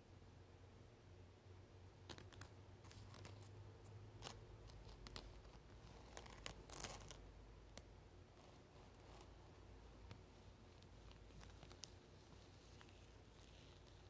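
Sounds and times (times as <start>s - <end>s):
faint low hum: 0.0s - 14.0s
rustling: 2.1s - 7.2s, 8.3s - 14.0s.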